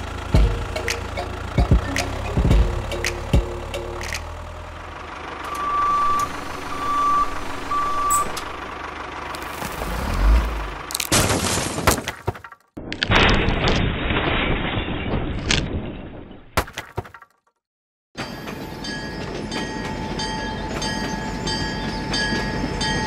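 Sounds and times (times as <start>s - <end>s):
low rumble: 0.0s - 11.1s
reversing alarm beeping: 5.4s - 8.7s.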